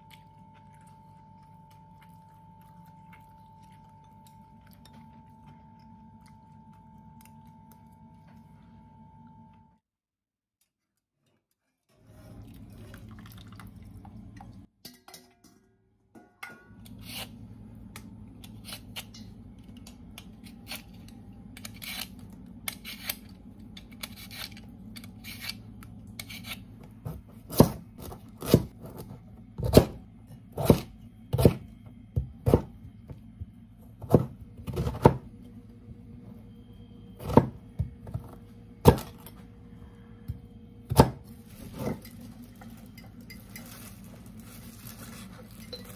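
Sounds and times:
peeler scraping beetroot skin: 17.0 - 17.4, 23.9 - 25.6, 26.2 - 26.6.

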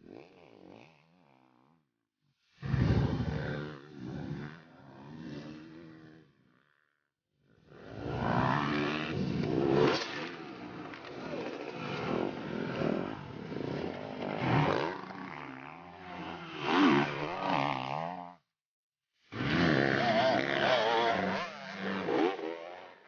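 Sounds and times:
racing engines revving hard: 7.8 - 17.8, 19.4 - 22.6.

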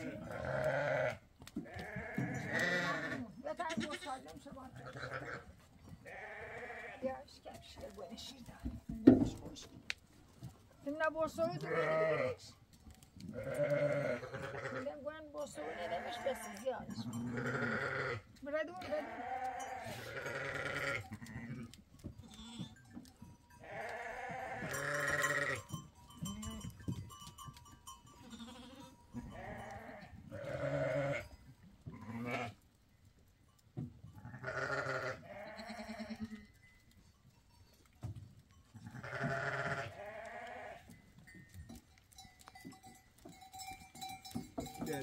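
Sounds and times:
goats bleating: 0.0 - 7.2, 11.4 - 12.5, 13.3 - 22.8, 23.6 - 26.8, 28.1 - 31.3, 31.9 - 32.6, 34.2 - 36.6, 38.8 - 41.0.

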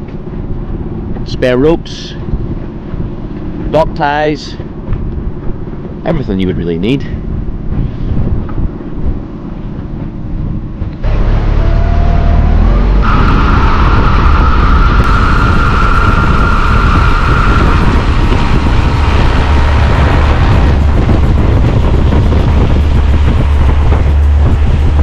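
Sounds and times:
water and wind rush: 0.0 - 25.0
outboard motor running: 17.4 - 25.0.

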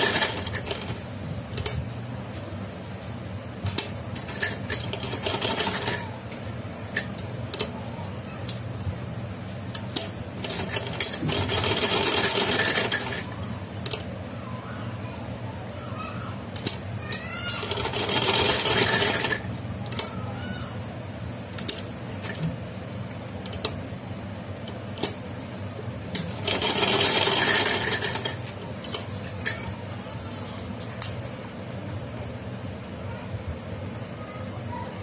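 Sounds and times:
sewing machine stitching: 0.0 - 1.0, 4.2 - 6.1, 10.4 - 13.3, 17.5 - 19.5, 26.2 - 28.4.

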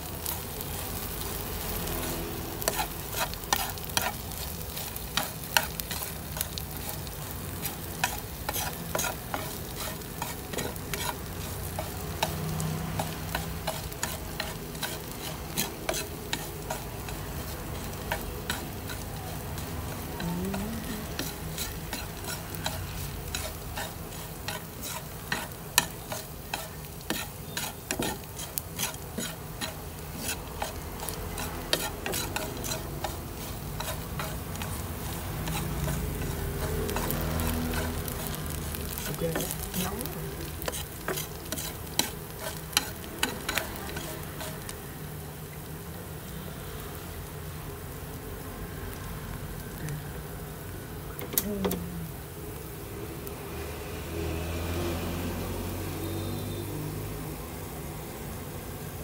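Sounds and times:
small fish sizzling in a pan: 0.0 - 59.0
chopsticks scraping metal pan: 1.0 - 44.7.

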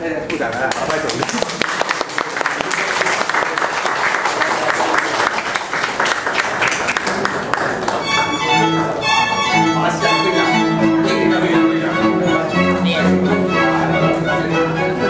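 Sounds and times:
crowd noise: 0.0 - 15.0
applause: 0.5 - 8.4
string quartet playing: 7.1 - 15.0.

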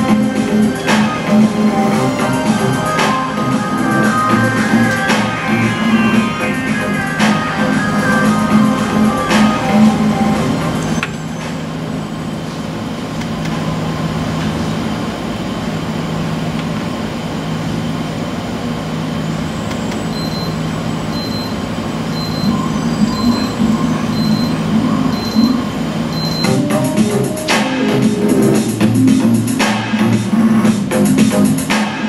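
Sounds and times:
constant low hum: 0.0 - 31.8
short high electronic beep: 21.2 - 26.8.

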